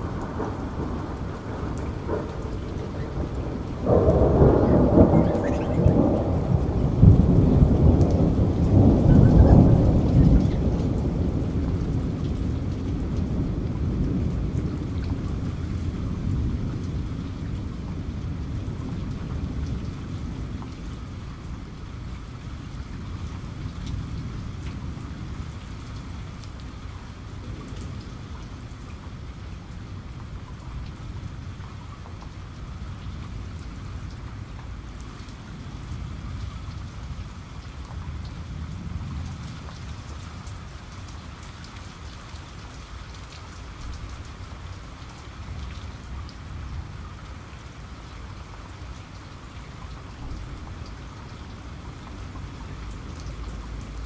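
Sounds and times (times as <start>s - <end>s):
raindrops ticking: 0.0s - 21.0s
steady rain hissing: 0.0s - 54.0s.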